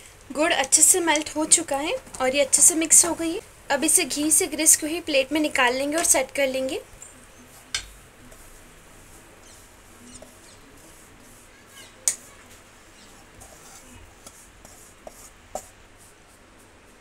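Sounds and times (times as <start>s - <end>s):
spatula scraping a steel pan: 13.0s - 15.3s.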